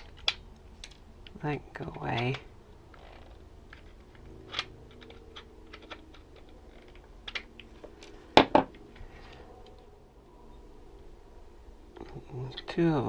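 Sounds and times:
hands handling plastic chassis: 0.0s - 9.8s.

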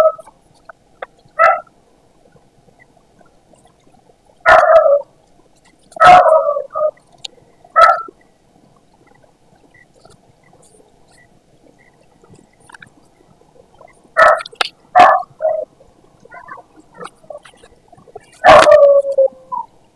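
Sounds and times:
dog barking: 1.4s - 1.7s, 4.4s - 5.0s, 6.0s - 7.0s, 7.8s - 8.1s, 14.2s - 15.6s, 18.4s - 19.0s.

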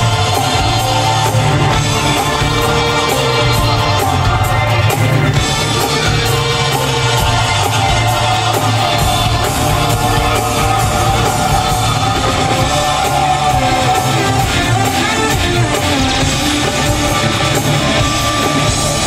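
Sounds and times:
orchestra and rock band playing: 0.0s - 19.0s.

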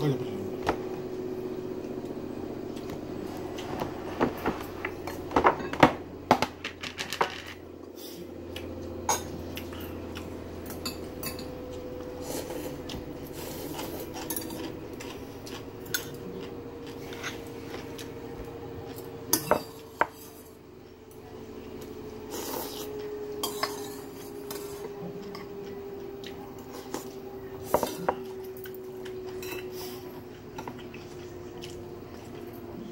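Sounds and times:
metal spoon clinking on bowls: 10.6s - 11.7s, 23.4s - 24.6s, 29.3s - 29.7s.

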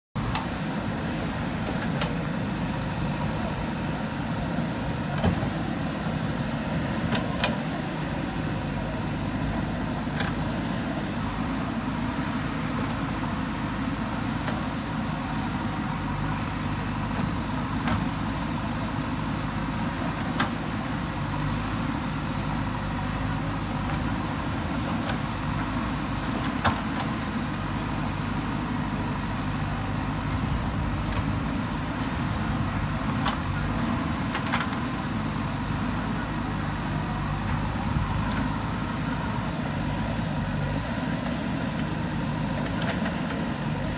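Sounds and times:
diesel engine running: 0.2s - 43.9s.

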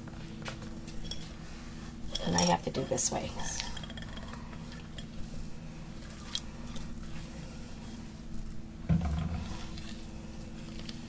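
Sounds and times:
dull thud: 8.9s - 9.6s.

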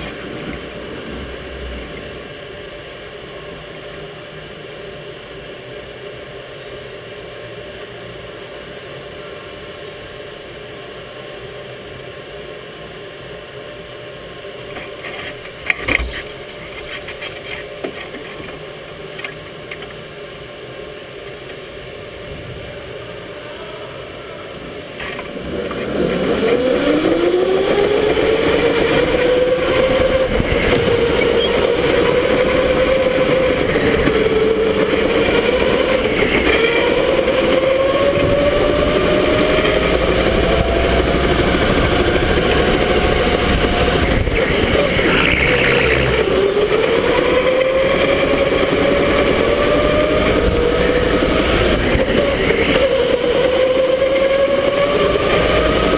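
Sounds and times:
steady rushing noise: 0.0s - 55.9s
electric go-kart motor whining: 21.4s - 55.9s.

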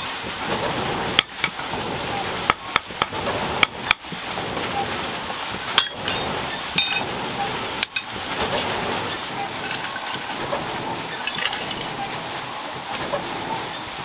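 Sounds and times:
steady rushing noise: 0.0s - 14.0s
hammer striking iron: 5.8s - 7.0s.

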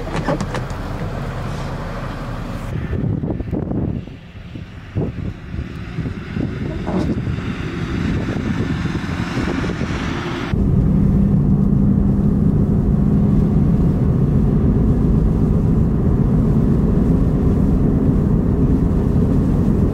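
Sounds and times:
vehicle rumbling on highway: 0.0s - 19.9s
wind hiss: 1.4s - 19.9s.

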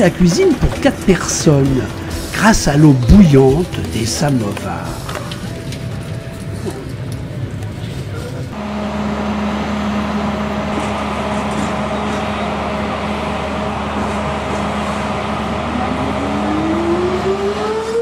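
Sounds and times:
electric locomotive humming: 0.0s - 18.0s
rising whine: 8.6s - 18.0s.

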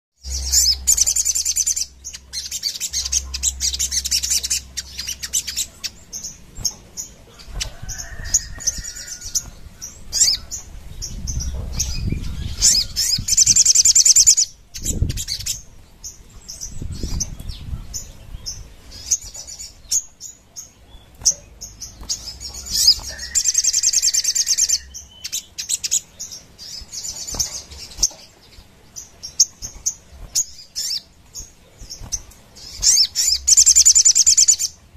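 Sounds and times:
bird high-pitched trilling: 0.2s - 15.7s, 16.5s - 28.2s, 29.3s - 31.1s, 31.9s - 34.8s
wings fluttering: 6.4s - 13.3s, 16.8s - 17.8s, 21.1s - 24.8s, 26.8s - 28.7s, 29.4s - 33.8s.

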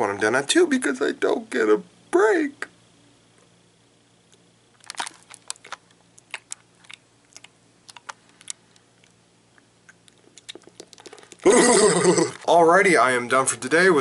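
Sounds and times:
lip smacks and mouth clicks: 4.9s - 11.5s.

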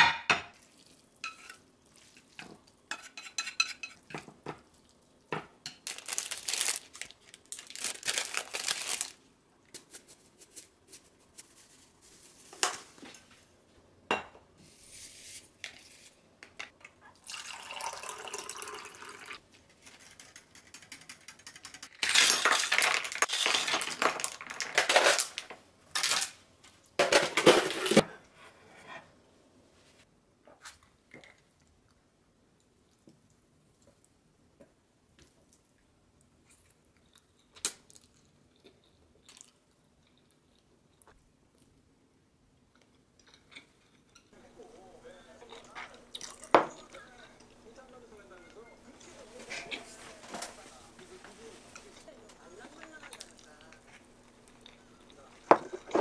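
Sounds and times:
dishes tapping on a counter: 0.0s - 0.5s
water pouring into a glass: 17.2s - 19.4s.

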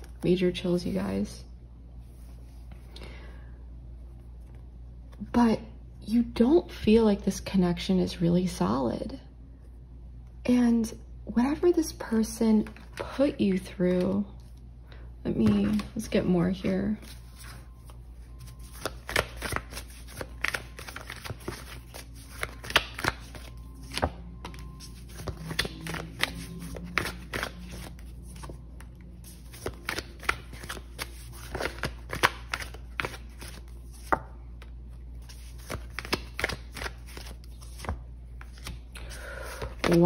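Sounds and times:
cards being shuffled: 17.0s - 40.0s.

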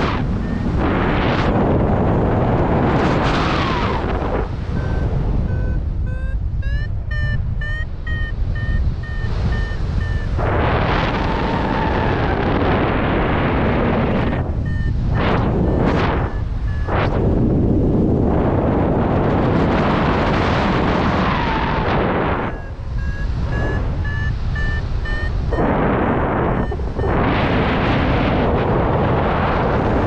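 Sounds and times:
variometer beeps: 0.0s - 1.6s, 3.0s - 12.5s, 13.3s - 17.5s, 22.2s - 28.5s
wind buffeting microphone: 0.0s - 30.0s.

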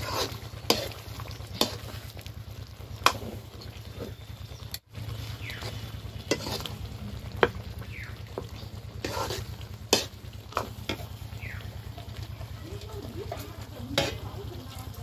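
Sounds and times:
metal ladle scraping a pan: 0.0s - 2.0s, 5.2s - 7.6s, 8.3s - 11.2s, 13.9s - 14.4s
low rumble: 0.0s - 15.0s.

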